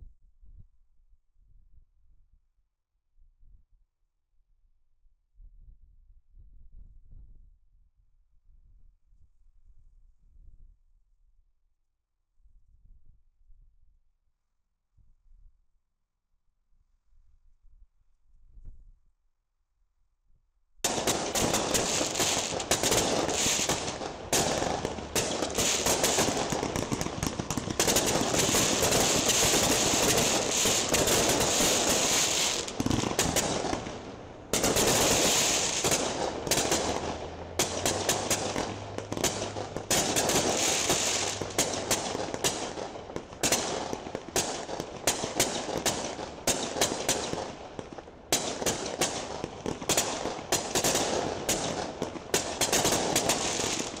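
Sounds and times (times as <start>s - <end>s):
fireworks bursting and crackling: 20.8s - 54.0s.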